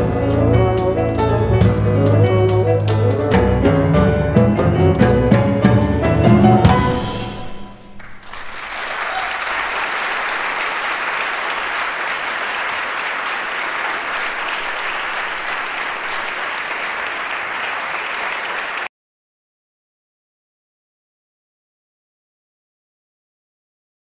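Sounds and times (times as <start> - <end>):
audience applauding: 8.0 - 18.9.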